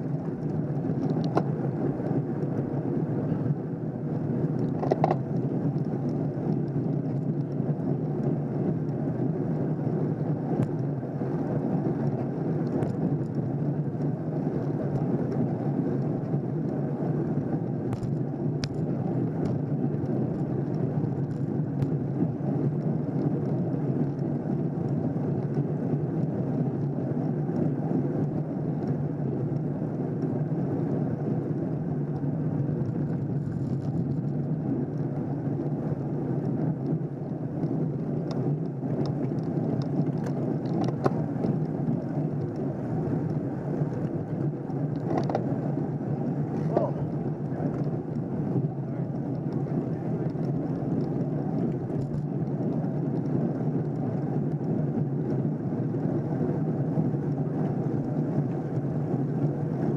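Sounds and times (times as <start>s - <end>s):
bicycle tyres on asphalt: 0.0s - 59.9s
wind on microphone: 0.0s - 59.9s.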